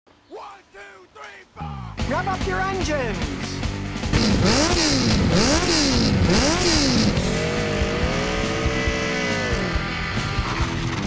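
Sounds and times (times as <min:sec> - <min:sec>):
motorcycle engine revving: 0:03.9 - 0:11.0.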